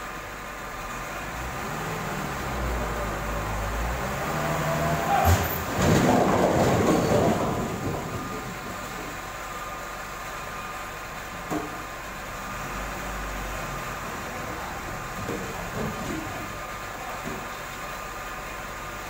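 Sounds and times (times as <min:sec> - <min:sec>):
low rumble of shifting logs: 0:00.0 - 0:19.0
logs tumbling and crashing: 0:05.2 - 0:09.1.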